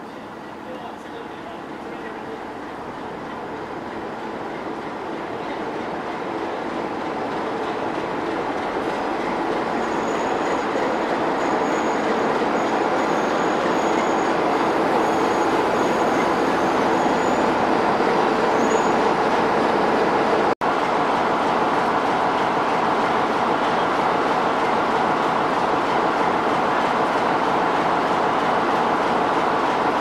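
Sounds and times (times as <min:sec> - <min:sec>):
diesel locomotive engine and wheels: 0:00.0 - 0:30.0
faint high brake squeal: 0:09.8 - 0:14.4, 0:15.0 - 0:17.5, 0:18.6 - 0:19.1.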